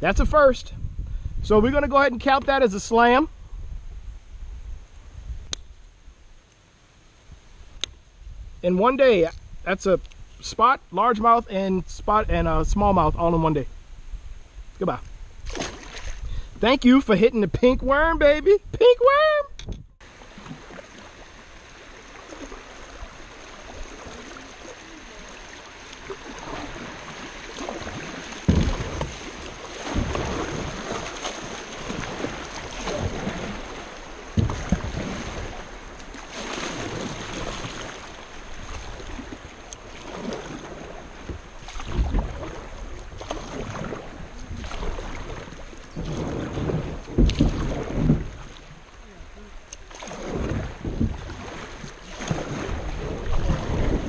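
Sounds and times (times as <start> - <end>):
wind thumping on microphone: 0.0 - 2.7, 17.6 - 20.8, 26.3 - 39.4, 40.1 - 48.8, 50.1 - 54.0
water rushing around hull: 0.0 - 54.0
paddle strokes splashing: 15.4 - 16.3, 20.0 - 54.0.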